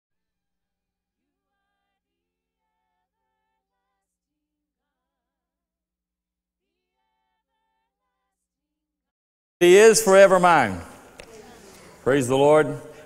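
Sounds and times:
faint sung melody: 1.1 - 5.8, 6.6 - 8.7.

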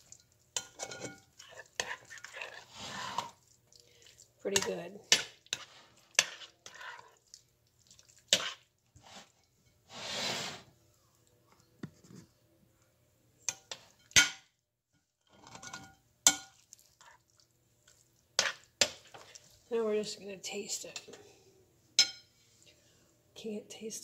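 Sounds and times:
spoon stirring thick beans: 0.0 - 10.1, 16.3 - 21.2.

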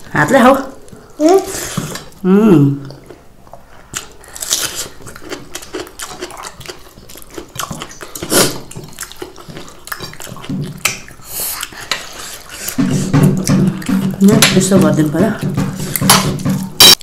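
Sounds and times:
chewing and lip smacks: 2.8 - 12.8.

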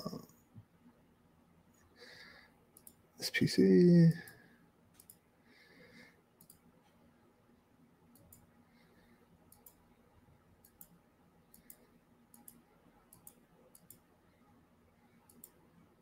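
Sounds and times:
computer mouse clicks: 2.7 - 3.0, 4.9 - 5.2, 6.4 - 6.7, 8.1 - 8.5, 9.5 - 9.8, 10.6 - 14.0, 15.2 - 15.6.

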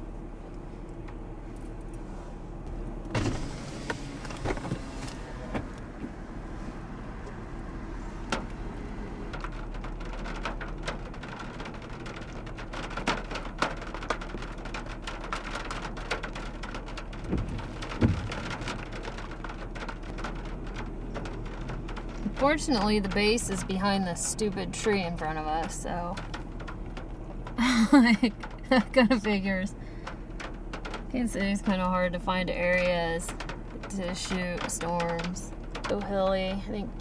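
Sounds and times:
raindrops ticking on car: 0.1 - 37.0
low thumps: 17.1 - 23.7.

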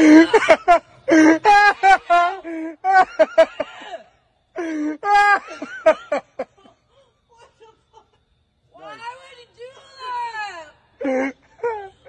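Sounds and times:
person laughing: 0.0 - 4.0.

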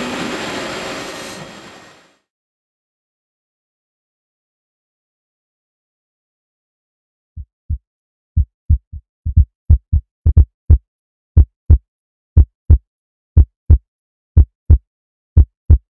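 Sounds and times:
heartbeat thumps: 7.4 - 7.8, 8.4 - 10.8, 11.4 - 11.8, 12.4 - 12.8, 13.4 - 13.8, 14.4 - 14.8, 15.4 - 15.9.

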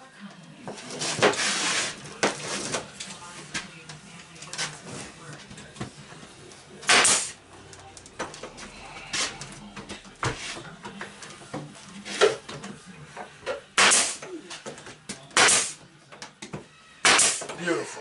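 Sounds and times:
nail gun firing into wood: 6.9 - 7.4, 13.8 - 14.2, 15.4 - 15.8, 17.0 - 17.5.

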